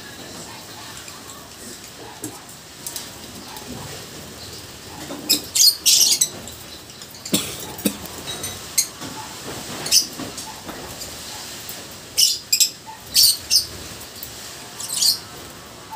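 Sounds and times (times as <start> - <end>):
lovebirds squeaky chirping: 4.4 - 10.6, 12.2 - 13.8, 14.8 - 15.3.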